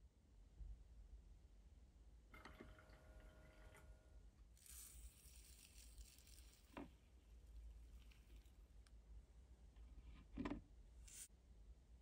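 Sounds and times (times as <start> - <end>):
sugar pouring hiss: 4.6 - 8.6, 11.0 - 11.3.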